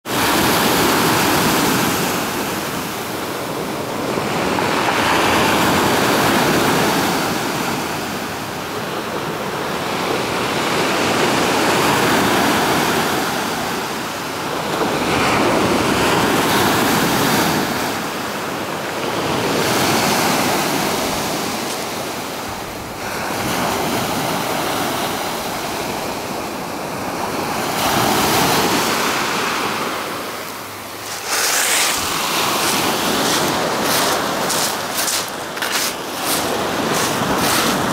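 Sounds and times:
surf breaking on pebbles: 0:30.9 - 0:37.9.

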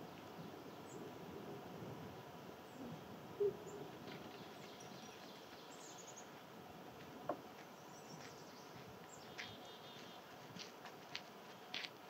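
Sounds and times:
distant bird chirps and trills: 0:02.6 - 0:06.5, 0:07.2 - 0:10.4.

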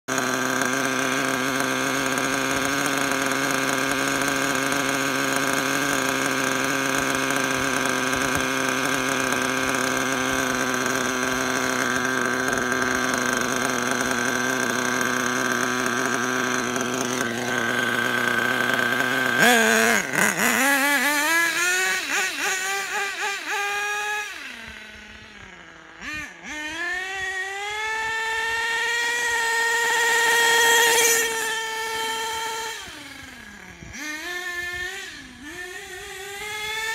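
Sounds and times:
model engine idling and revving: 0:00.0 - 0:36.9.

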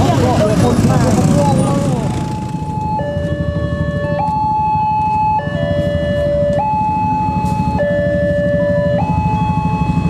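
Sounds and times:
two-tone level crossing alarm: 0:02.6 - 0:10.0.

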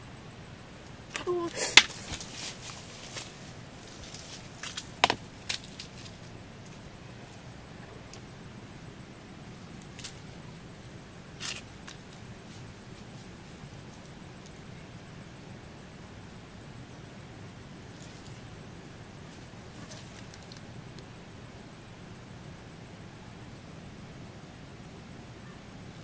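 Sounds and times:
stick tapping in dry leaves: 0:01.1 - 0:06.8.

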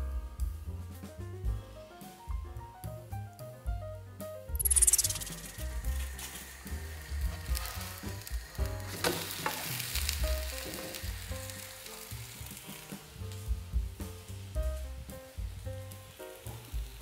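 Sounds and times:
pancake sizzling in hot oil: 0:04.6 - 0:17.0.

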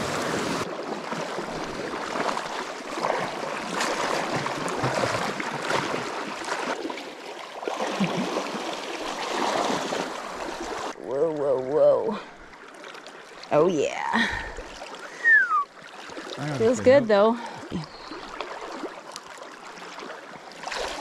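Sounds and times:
legs wading sloshing water: 0:00.0 - 0:11.0, 0:15.8 - 0:21.0
stream flowing: 0:00.0 - 0:21.0.

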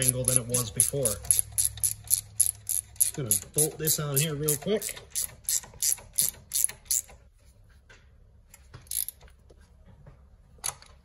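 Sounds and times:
ratchet wrench clicking: 0:00.0 - 0:07.2, 0:08.9 - 0:09.2.

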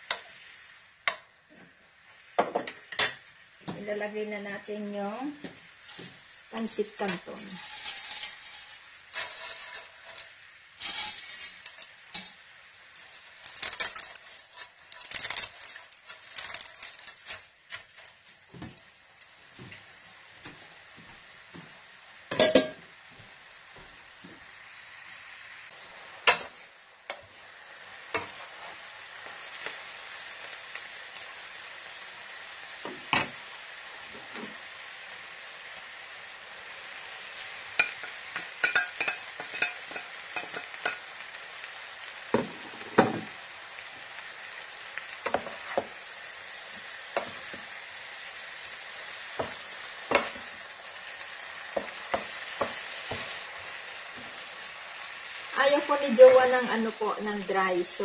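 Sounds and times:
steady sizzle: 0:00.0 - 0:58.0
plate and spatula clatter: 0:07.1 - 0:12.4, 0:22.3 - 0:22.8, 0:37.7 - 0:41.1
dry noodles rustling and crackling: 0:07.4 - 0:19.0.

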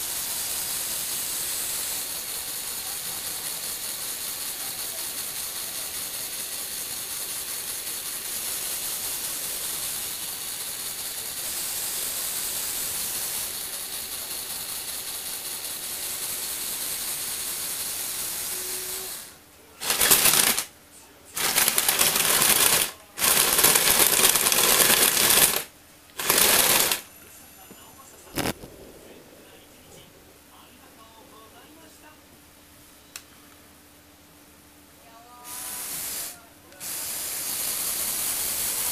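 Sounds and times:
fast gear clatter: 0:19.8 - 0:20.7, 0:21.4 - 0:27.0
electric motor whirring: 0:21.4 - 0:27.1.

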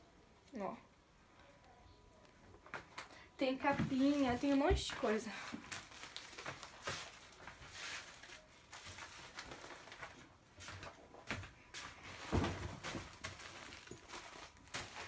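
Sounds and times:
yarn rustling: 0:03.6 - 0:15.0.

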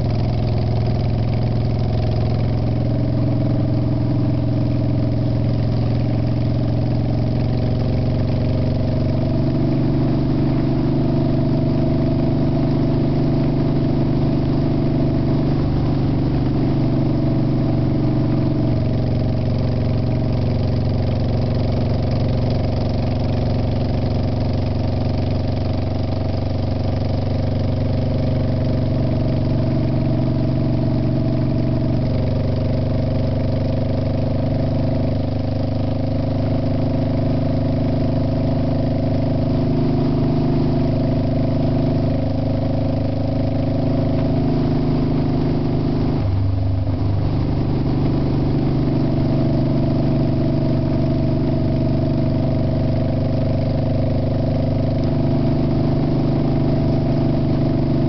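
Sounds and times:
vehicle engine running: 0:00.0 - 0:58.0
road and wind noise: 0:36.5 - 0:58.0.

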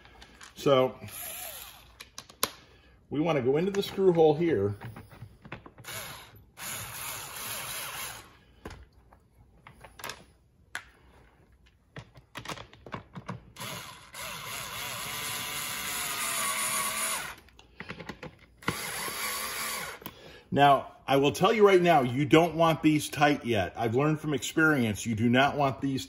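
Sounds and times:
electric screwdriver whirring: 0:01.0 - 0:02.0, 0:05.8 - 0:08.4, 0:13.6 - 0:17.5, 0:18.6 - 0:20.1
handling clicks and knocks: 0:11.6 - 0:13.6.

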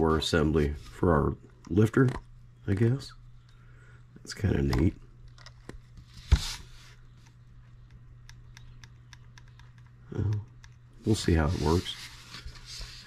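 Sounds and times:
light irregular clicks and taps: 0:07.1 - 0:10.8.

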